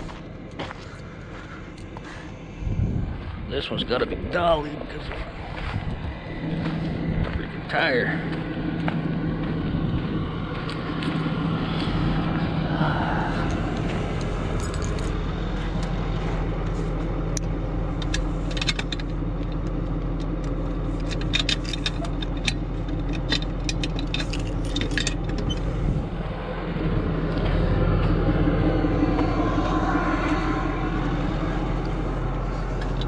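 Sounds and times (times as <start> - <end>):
truck engine idling: 0.0 - 33.0
metal gear clinking and rattling: 14.5 - 15.2, 20.9 - 25.8.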